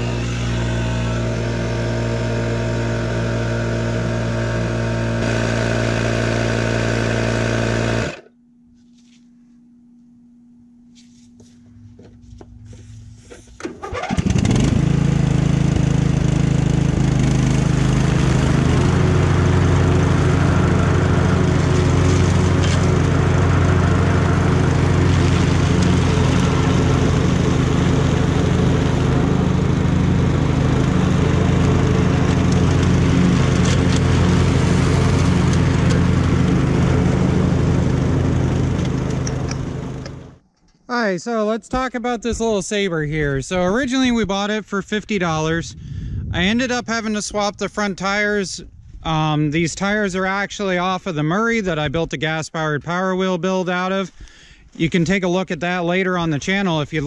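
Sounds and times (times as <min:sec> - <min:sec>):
electric tyre inflator running: 0:00.0 - 0:08.3, 0:13.6 - 0:40.4
riding mower engine running: 0:00.0 - 0:08.4, 0:12.3 - 0:40.6.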